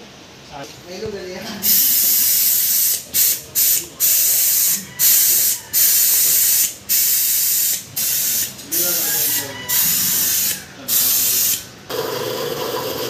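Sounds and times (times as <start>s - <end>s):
compressed air hissing: 1.6s - 11.8s.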